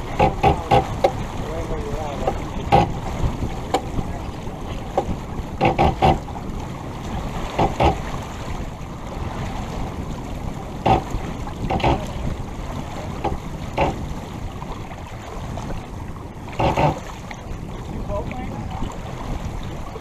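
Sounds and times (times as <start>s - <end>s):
splashes or knocks: 0.0s - 8.6s, 10.8s - 14.9s, 16.5s - 17.5s
water rushing along hull: 0.0s - 20.0s
wind on microphone: 0.0s - 20.0s.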